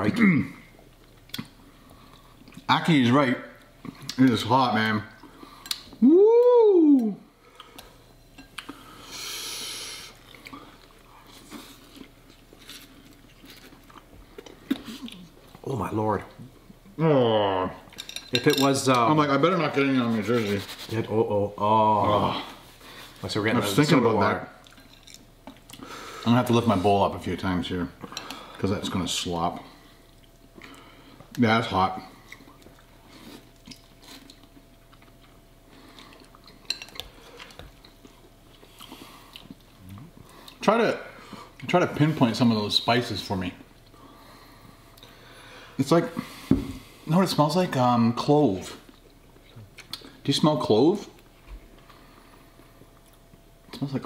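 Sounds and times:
chewing and mouth noises: 10.1 - 15.6, 24.6 - 25.9, 32.1 - 40.6, 48.8 - 50.2.

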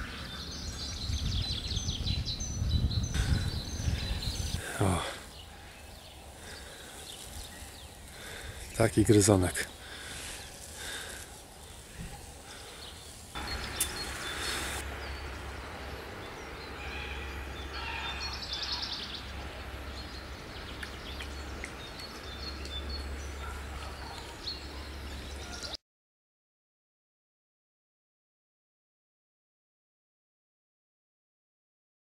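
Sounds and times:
bird chirps: 12.0 - 25.8.

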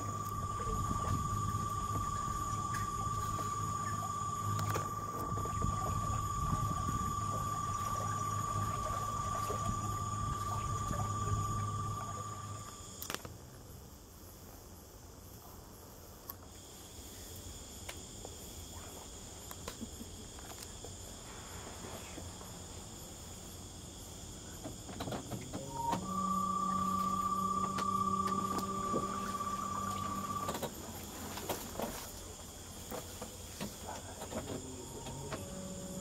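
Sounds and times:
hum with high whine: 0.0 - 13.3, 25.5 - 33.0, 33.8 - 36.0
night insects chirring: 0.0 - 36.0.

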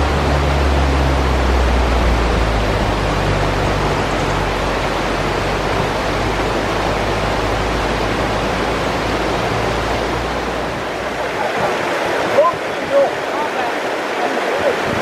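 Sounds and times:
low rumble: 0.0 - 11.5
mountain river rushing: 0.0 - 15.0.

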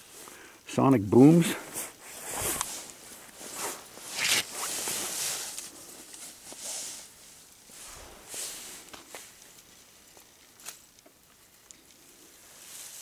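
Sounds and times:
nylon jacket rustling: 1.6 - 7.1
camera handling scrapes: 3.4 - 5.2.

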